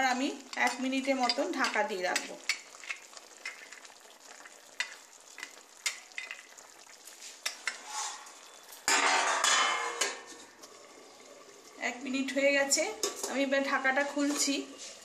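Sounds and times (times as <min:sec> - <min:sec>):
faint sizzle: 0:00.0 - 0:15.0
metal spatula scraping a pan: 0:07.2 - 0:10.5, 0:13.0 - 0:15.0.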